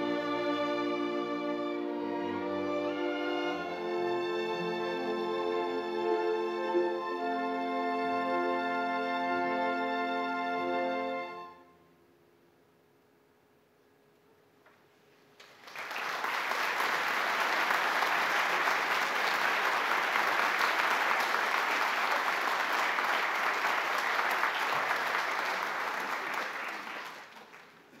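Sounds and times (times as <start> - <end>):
audience applause: 15.4 - 28.0.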